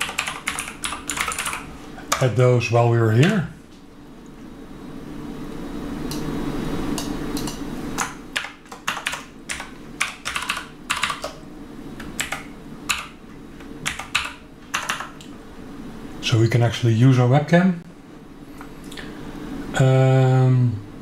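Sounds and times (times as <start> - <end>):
typing on computer keyboard: 0.0 - 2.3, 7.4 - 11.4, 12.0 - 13.2, 13.8 - 15.3.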